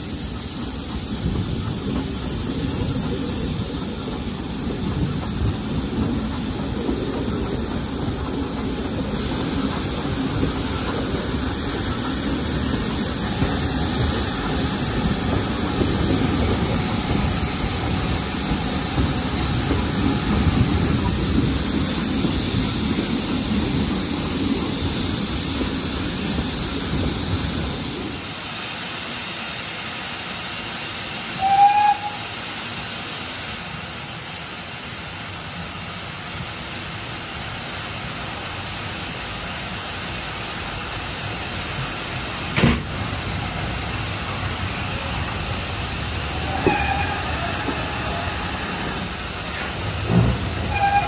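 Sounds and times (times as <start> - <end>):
steam hissing: 0.0 - 51.0
steam train rumble: 0.0 - 51.0
steam whistle toot: 31.4 - 32.4, 46.4 - 48.9, 50.6 - 51.0.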